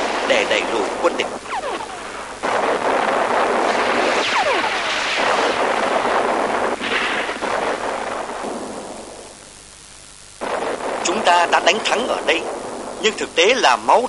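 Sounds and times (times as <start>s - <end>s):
gunfire: 0.0s - 9.5s, 10.4s - 14.0s
explosions: 0.0s - 14.0s
falling whistle: 4.1s - 4.9s.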